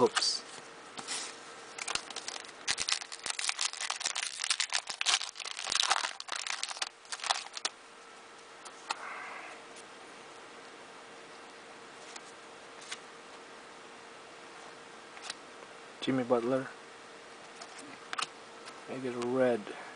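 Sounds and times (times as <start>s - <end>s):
foil wrapper tearing and crinkling: 1.8s - 7.7s.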